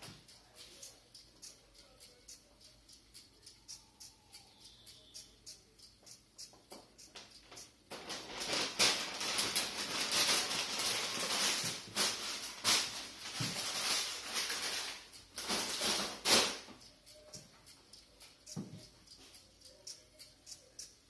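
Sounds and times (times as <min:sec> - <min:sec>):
toy robot mechanical rattling: 0:00.2 - 0:21.0.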